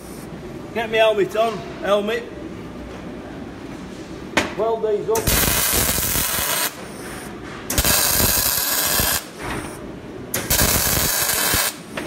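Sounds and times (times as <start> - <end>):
welding arc crackling: 5.2 - 6.8, 7.7 - 9.4, 10.3 - 11.9.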